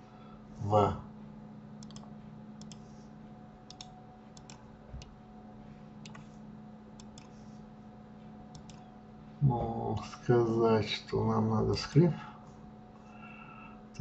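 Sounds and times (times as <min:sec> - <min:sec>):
low electrical hum: 0:00.0 - 0:14.0
mouse buttons clicking: 0:03.7 - 0:05.1, 0:08.5 - 0:08.8.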